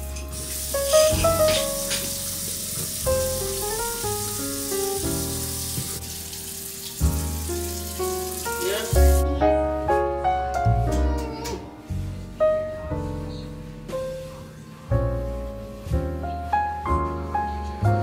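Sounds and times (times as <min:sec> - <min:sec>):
tap water running into sink: 0:00.0 - 0:09.2
background music: 0:00.0 - 0:18.0.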